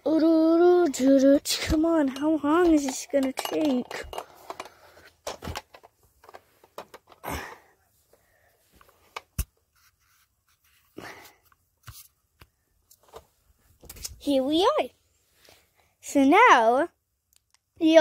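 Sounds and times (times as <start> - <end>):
breaths: 4.1 - 5.3, 7.1 - 9.0, 10.9 - 11.6, 15.3 - 16.0.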